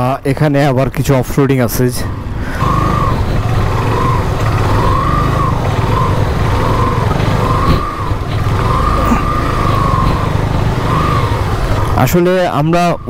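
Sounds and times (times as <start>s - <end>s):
motorcycle engine revving: 1.9s - 13.0s.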